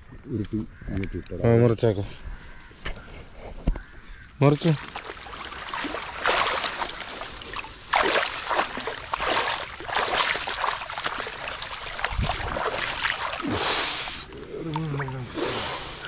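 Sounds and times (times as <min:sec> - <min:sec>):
water splashing and sloshing: 0:04.4 - 0:16.0.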